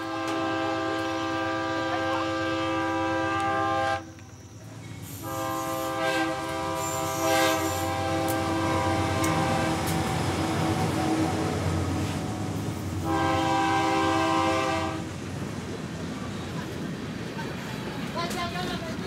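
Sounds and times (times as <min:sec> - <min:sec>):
train air horn: 0:00.0 - 0:04.2, 0:05.1 - 0:10.8, 0:13.0 - 0:15.1
train rumble: 0:00.0 - 0:19.0.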